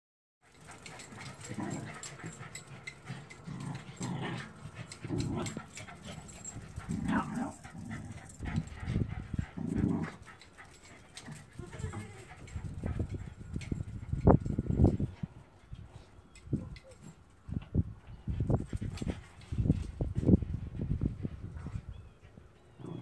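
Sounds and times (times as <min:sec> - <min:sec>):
dogs whining and yipping: 0:00.5 - 0:17.3, 0:21.6 - 0:23.0.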